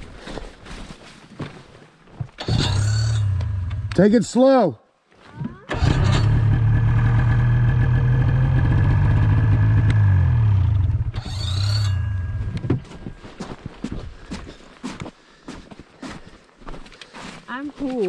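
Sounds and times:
snowmobile engine running: 5.7s - 12.6s.

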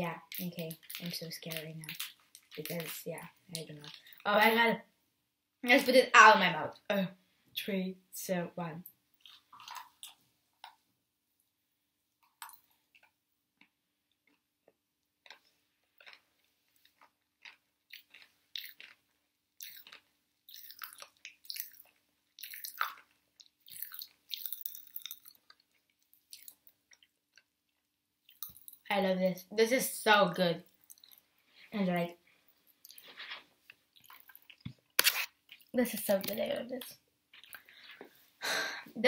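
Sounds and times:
faint chewing and mouth sounds: 0.1s - 4.6s, 8.8s - 28.9s, 30.6s - 38.4s.

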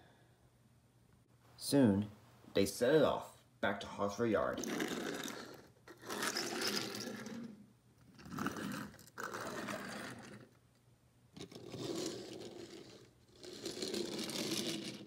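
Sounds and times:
toy wheels rolling on wood floor: 4.5s - 10.6s, 11.4s - 15.0s.

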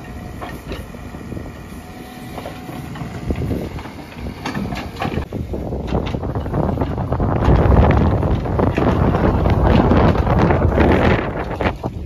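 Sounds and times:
diesel engine running under load: 0.0s - 12.0s.

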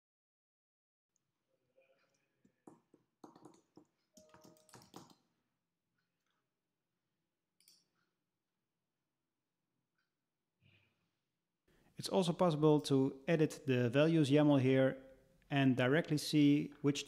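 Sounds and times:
computer keyboard typing: 2.6s - 5.2s.

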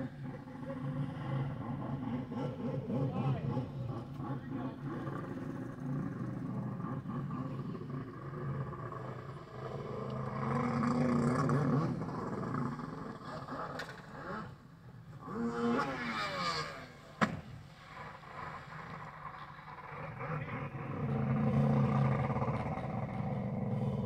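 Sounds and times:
jet ski engine revving: 0.0s - 24.0s.

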